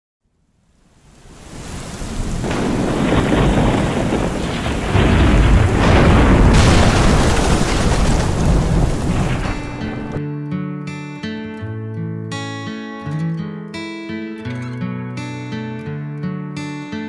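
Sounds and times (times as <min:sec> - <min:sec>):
heavy rain hissing: 0:00.9 - 0:10.2
thunder rumbling: 0:01.2 - 0:10.2
thunder crash: 0:01.5 - 0:10.2.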